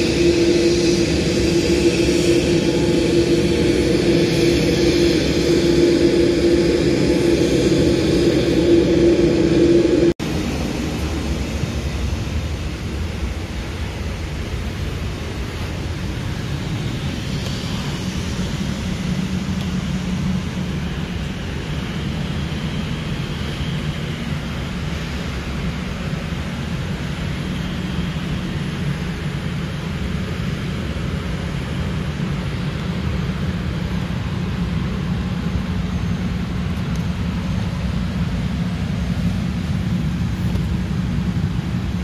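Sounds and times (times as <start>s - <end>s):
cabin air rushing: 0.0s - 10.4s
low even rumble: 0.0s - 22.2s.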